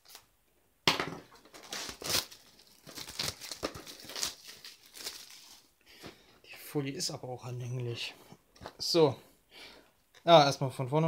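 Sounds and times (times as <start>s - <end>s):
plastic film crinkling and tearing: 1.5s - 5.7s.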